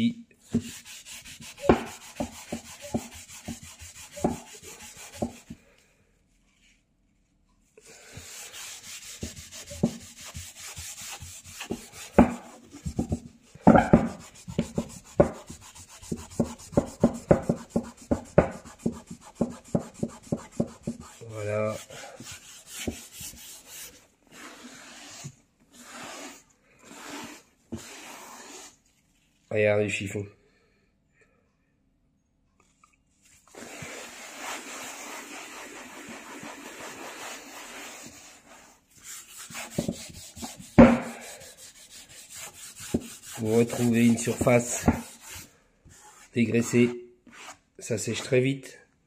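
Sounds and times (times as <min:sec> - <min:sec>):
cloth rubbing chair surface: 0:22.4 - 0:28.8, 0:33.5 - 0:45.4.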